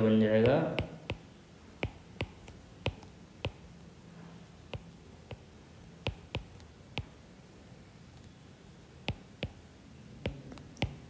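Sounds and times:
stylus tapping on drawing tablet: 0:00.4 - 0:03.7, 0:04.7 - 0:07.2, 0:09.0 - 0:09.6, 0:10.2 - 0:11.0.

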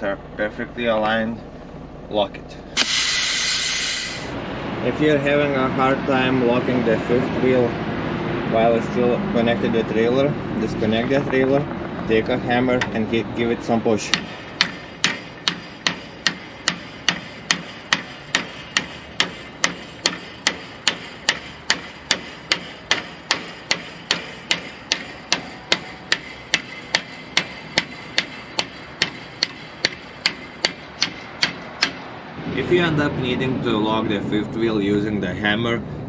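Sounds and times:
hammer clanking on steel: 0:14.1 - 0:32.2.

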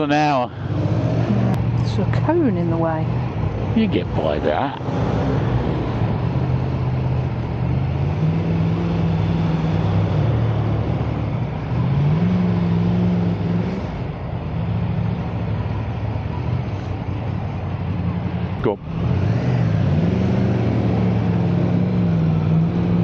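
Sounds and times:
wind and road noise: 0:00.0 - 0:23.0.

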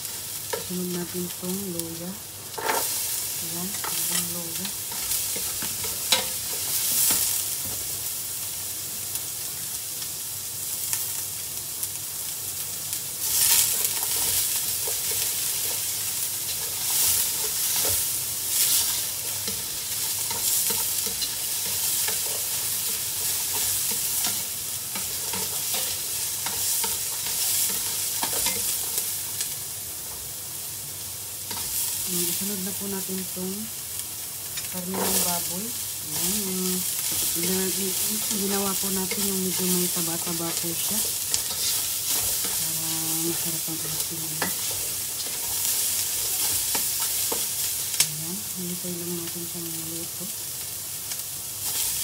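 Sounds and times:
food sizzling in hot oil: 0:00.0 - 0:52.0.

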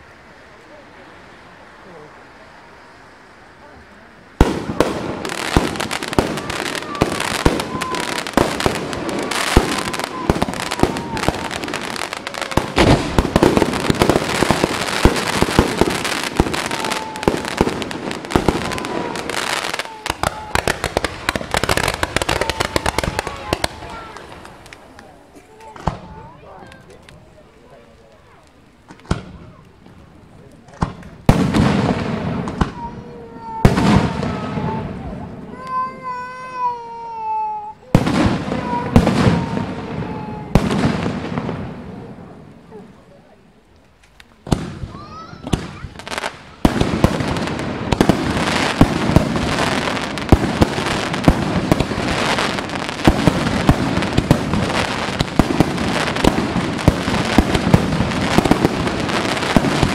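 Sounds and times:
fireworks bangs and pops: 0:04.4 - 0:59.9
whistling firework tone: 0:04.5 - 0:25.0.

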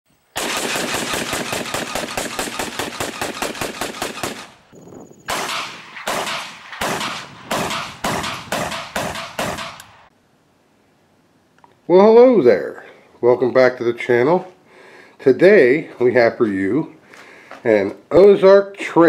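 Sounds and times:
rifle automatic fire: 0:00.4 - 0:04.7, 0:05.3 - 0:10.1
rifle single shots: 0:00.4 - 0:04.7, 0:05.3 - 0:10.1.

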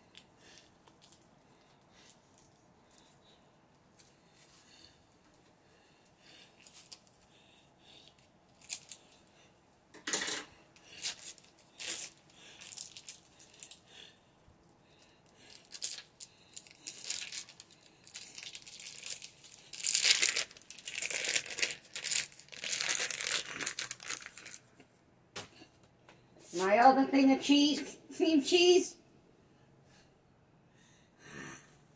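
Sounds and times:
wrapper crackling: 0:08.6 - 0:09.2, 0:10.9 - 0:13.8, 0:15.5 - 0:24.7.

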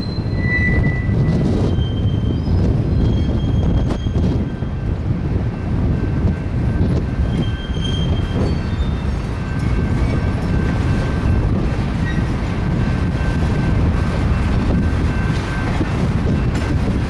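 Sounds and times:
faint high wheel squeal: 0:00.0 - 0:04.9, 0:06.8 - 0:11.4, 0:12.0 - 0:12.4
rumble of train wheels on rail: 0:00.0 - 0:17.0.

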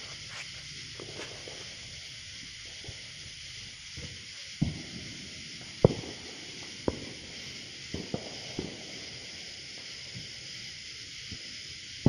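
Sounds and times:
firecrackers popping: 0:00.0 - 0:12.0
steady hiss: 0:00.0 - 0:12.0.

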